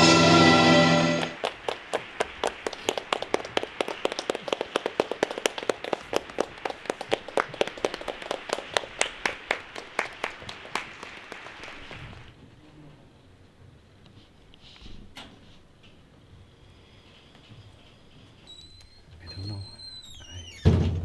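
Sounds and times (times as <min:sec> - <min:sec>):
audience applause: 0:00.0 - 0:12.3.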